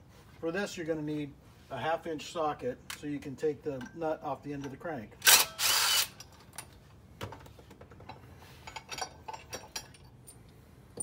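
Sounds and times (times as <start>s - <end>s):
small metal parts clinking: 8.0s - 11.0s.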